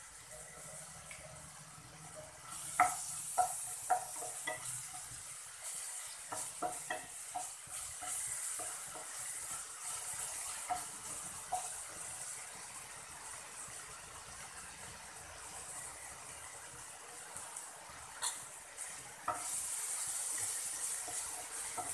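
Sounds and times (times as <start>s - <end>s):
onions sizzling in hot oil: 0.0s - 21.9s
wooden spatula knocking on pan: 2.5s - 9.5s, 10.4s - 10.9s, 21.0s - 21.9s.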